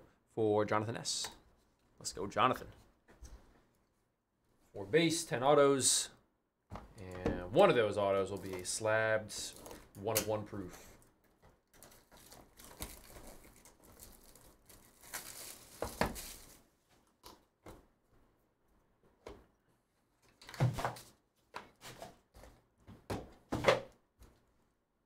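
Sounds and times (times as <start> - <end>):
plastic wrap crinkling and tearing: 11.6 - 16.7.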